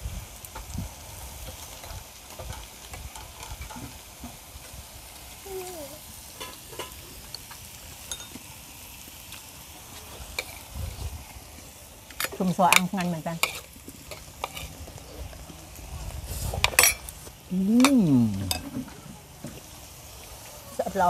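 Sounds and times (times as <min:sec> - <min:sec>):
meat sizzling on a grill: 0:00.0 - 0:21.0
chopsticks clicking on grill: 0:12.1 - 0:14.8, 0:16.6 - 0:18.7.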